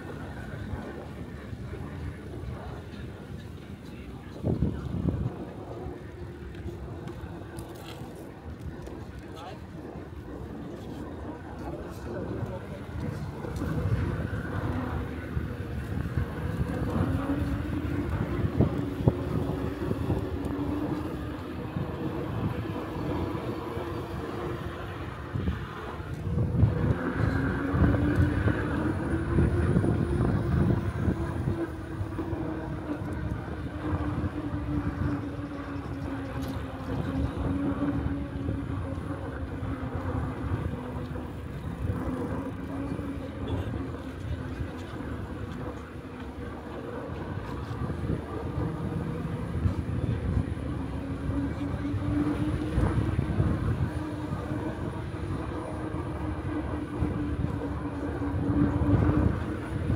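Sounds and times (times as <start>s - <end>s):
wind rumbling on microphone: 0.0s - 59.9s
electric bike motor whining: 12.2s - 59.9s.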